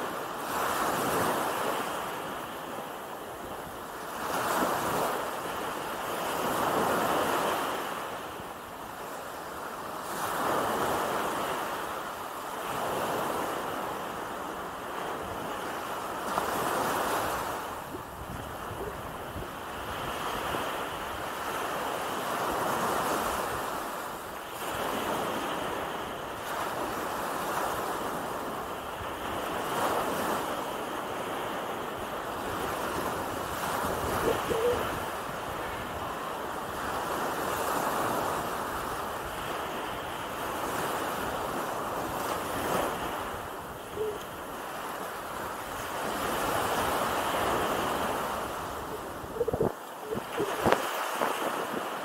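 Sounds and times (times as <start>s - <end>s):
waves washing over sandy beach: 0.0s - 52.0s
wind on microphone: 16.4s - 21.4s, 31.2s - 44.3s, 45.7s - 52.0s.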